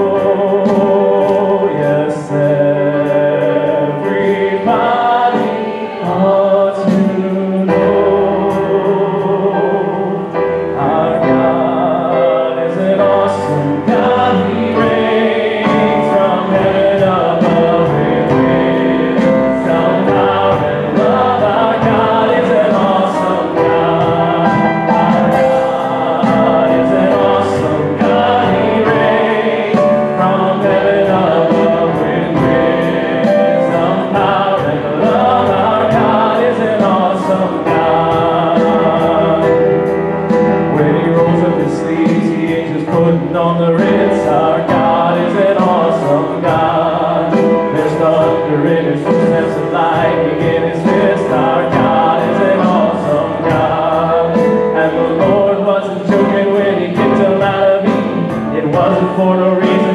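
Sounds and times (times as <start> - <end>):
group of voices singing: 0.0 - 59.9
keyboard accompaniment: 0.0 - 59.9
man singing: 0.0 - 59.9
steady beat: 12.8 - 59.9.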